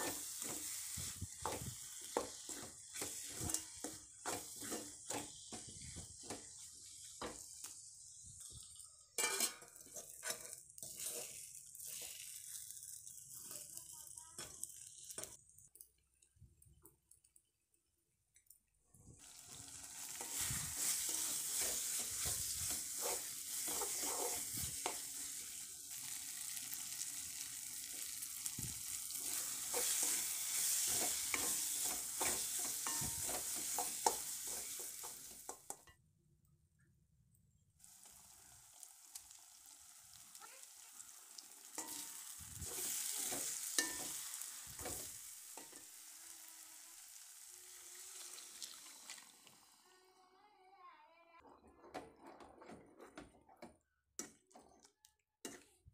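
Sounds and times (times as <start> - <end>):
wooden spatula scraping pan: 0.0 - 7.4, 9.2 - 12.2, 20.1 - 25.3, 29.1 - 35.6
masala sizzling in a pan: 0.0 - 36.0, 37.8 - 50.6.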